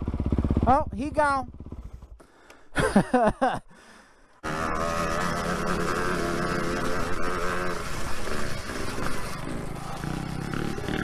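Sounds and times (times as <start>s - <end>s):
dirt bike engine revving: 0.0s - 2.2s, 4.4s - 11.0s
rushing and rattling noise: 4.5s - 11.0s.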